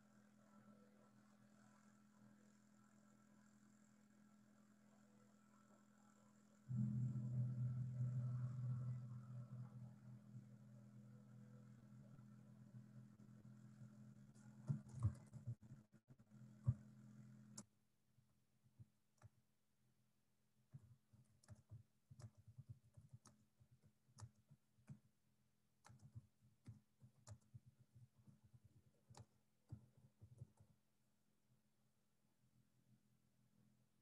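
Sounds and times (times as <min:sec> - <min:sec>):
faint steady hum: 0:00.0 - 0:19.4
computer keyboard clicking: 0:20.8 - 0:25.1, 0:25.8 - 0:30.8.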